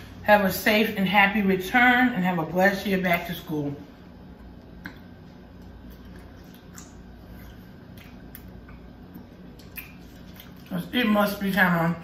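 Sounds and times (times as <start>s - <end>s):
steady low hum: 0.0s - 12.0s
faint wet chewing: 4.3s - 10.8s.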